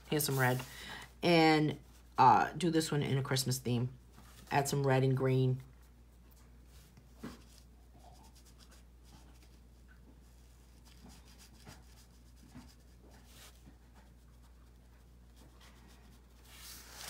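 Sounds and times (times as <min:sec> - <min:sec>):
marker scratching on paper: 0:10.7 - 0:17.0.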